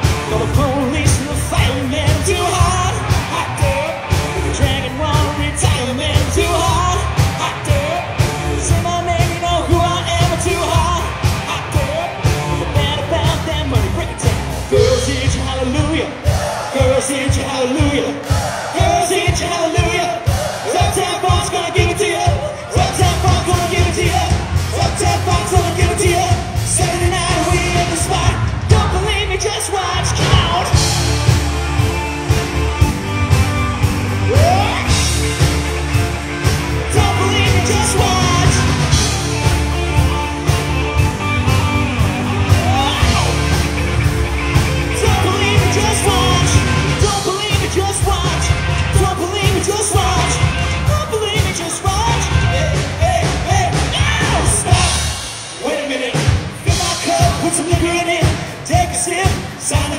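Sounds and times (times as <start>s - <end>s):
bass guitar: 0.0s - 59.9s
person singing lead vocals: 0.0s - 59.9s
steady drum beat: 0.0s - 59.9s
shouted backing vocals: 14.7s - 47.6s
electric guitar: 30.0s - 55.6s.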